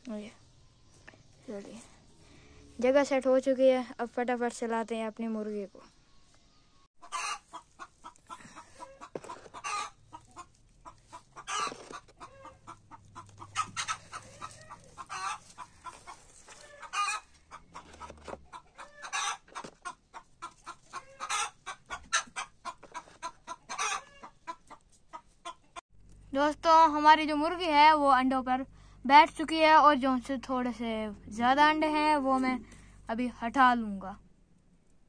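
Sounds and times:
chickens clucking: 5.9s - 25.8s
chicken squawking: 7.0s - 25.8s.

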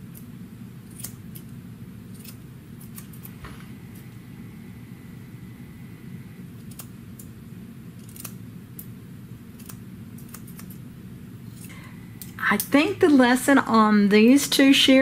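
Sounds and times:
steady low hum: 0.0s - 15.0s
shears snipping: 9.6s - 10.8s.

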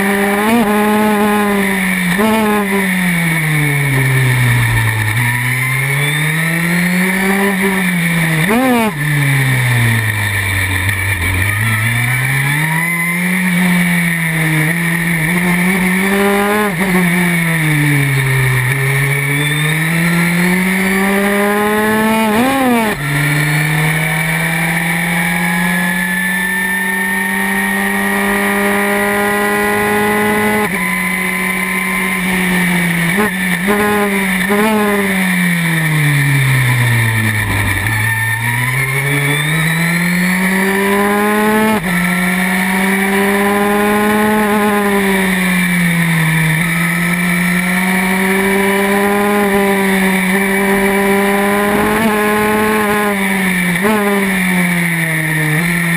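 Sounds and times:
racing car engine revving: 0.0s - 55.9s.

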